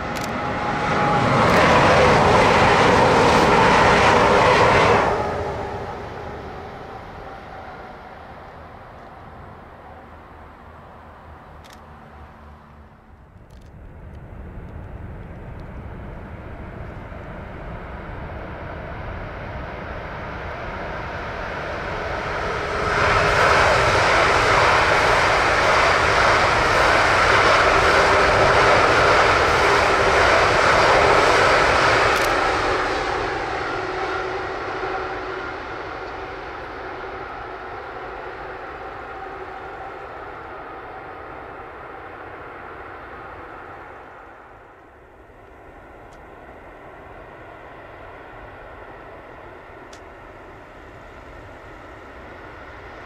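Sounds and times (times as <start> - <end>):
high-speed train rushing past: 0.0 - 53.0.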